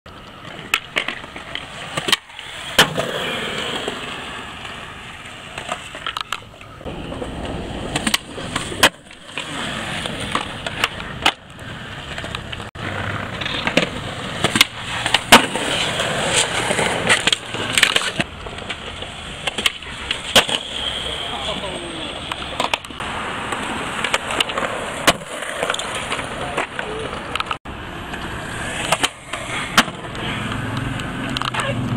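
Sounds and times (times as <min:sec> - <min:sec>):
skateboard slapping down: 0:00.1 - 0:20.8, 0:22.2 - 0:31.8
skateboard tail clacks: 0:00.1 - 0:20.8, 0:22.2 - 0:31.7
skateboard wheels rolling on concrete: 0:00.1 - 0:31.9.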